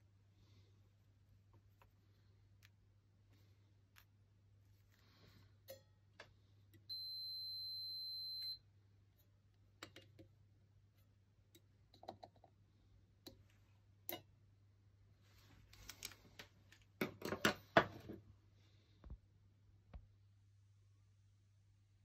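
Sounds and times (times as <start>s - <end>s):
multimeter continuity beep: 6.8s - 8.7s.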